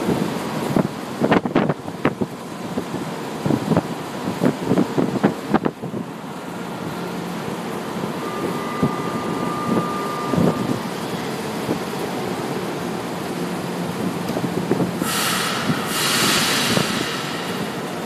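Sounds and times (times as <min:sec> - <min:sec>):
thin high whine: 0:06.8 - 0:12.4.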